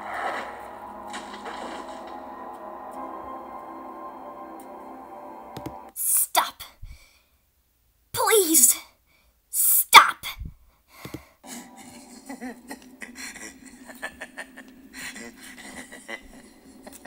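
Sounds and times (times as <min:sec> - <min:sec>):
clicks: 0:05.6 - 0:05.8
faint breathy sounds: 0:06.7 - 0:07.4
steady low hum: 0:11.4 - 0:17.0.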